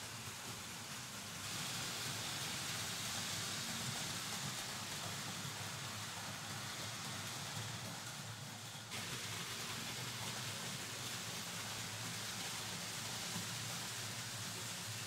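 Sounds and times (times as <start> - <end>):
model train wheels on metal rails: 0.0 - 15.0.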